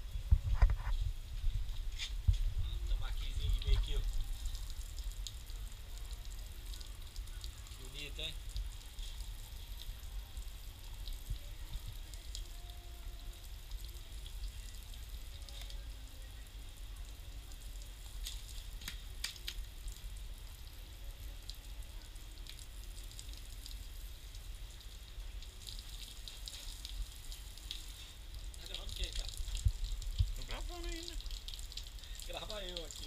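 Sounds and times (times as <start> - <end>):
water spattering on concrete floor: 0.3 - 33.0
sharp slaps: 18.8 - 19.6.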